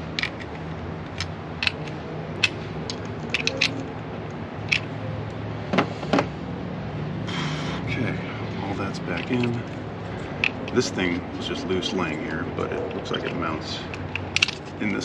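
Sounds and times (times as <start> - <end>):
metal tools clicking and clinking: 0.0 - 4.0, 4.6 - 4.9, 9.1 - 11.2, 11.8 - 15.0
steady low hum: 0.0 - 15.0.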